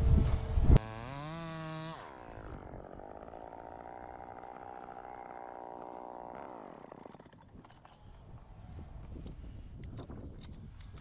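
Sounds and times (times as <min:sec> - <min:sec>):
chainsaw engine idling and stopping: 0:00.8 - 0:08.3.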